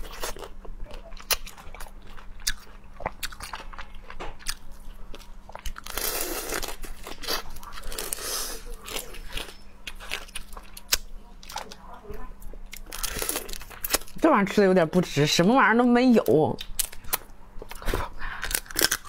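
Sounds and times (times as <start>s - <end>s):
chewing: 0.0s - 14.2s
crab shell crunching: 16.6s - 19.0s.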